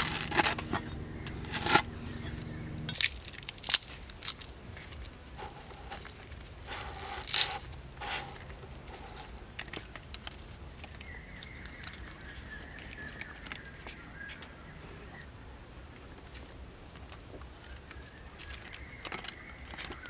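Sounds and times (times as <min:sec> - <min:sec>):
lemongrass stalks snapping: 0:00.0 - 0:05.2
tearing crunching rustles: 0:00.0 - 0:10.7.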